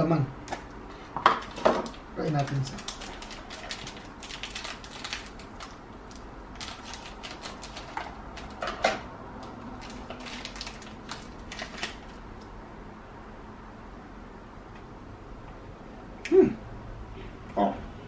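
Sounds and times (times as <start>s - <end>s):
snack wrapper crinkling: 1.4s - 8.6s, 9.4s - 12.4s.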